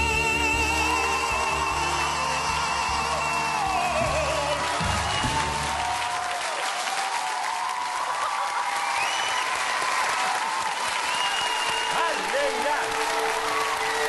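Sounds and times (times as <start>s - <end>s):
backing music: 0.0s - 6.3s, 11.9s - 14.0s
audience applauding: 0.0s - 14.0s
scattered cheers: 0.9s - 14.0s.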